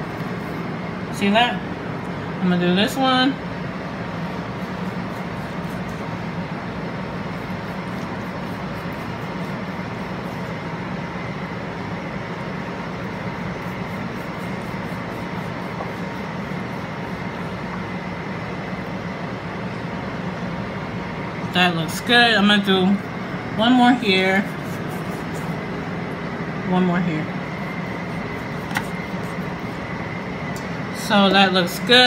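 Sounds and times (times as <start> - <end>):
appliance drone and hiss: 0.0 - 32.0
knife sawing through pork skin: 4.2 - 6.4, 7.1 - 10.6, 13.1 - 17.6, 24.0 - 25.8, 27.4 - 29.9.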